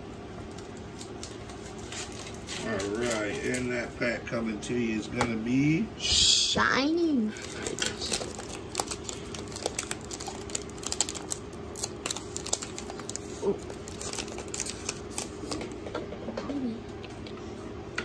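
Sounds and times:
foil wrapper crinkling: 0.5 - 3.9, 7.3 - 15.8.

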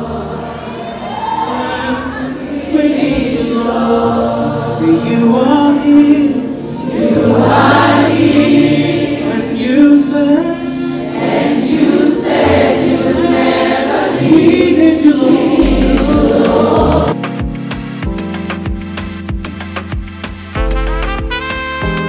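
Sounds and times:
gospel choir singing: 0.0 - 17.2.

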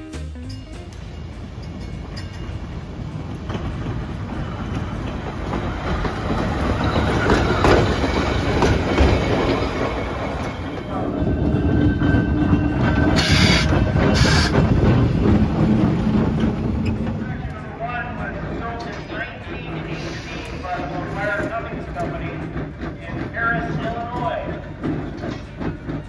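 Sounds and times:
trolley wheels clacking on rails: 0.4 - 26.0.

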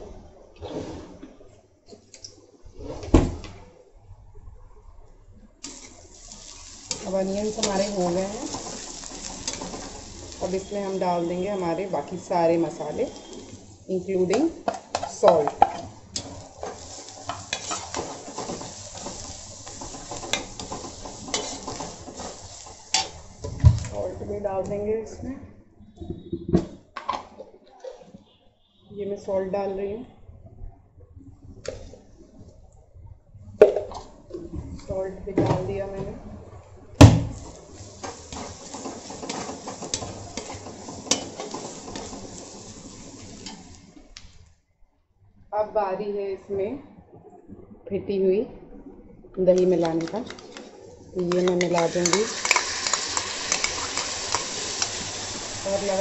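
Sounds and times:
light sizzle of frying: 5.0 - 25.4, 33.6 - 44.6, 49.4 - 56.0
metal spatula scraping a pan: 14.3 - 23.2, 37.4 - 43.8
spatula tapping metal pan: 51.2 - 54.9.

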